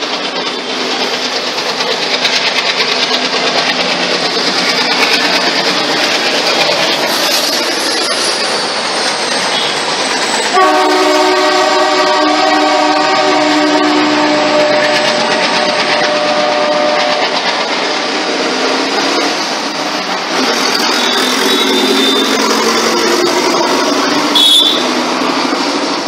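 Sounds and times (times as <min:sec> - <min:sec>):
road traffic passing: 0:00.0 - 0:26.0
train horn: 0:10.5 - 0:17.3, 0:24.3 - 0:25.0.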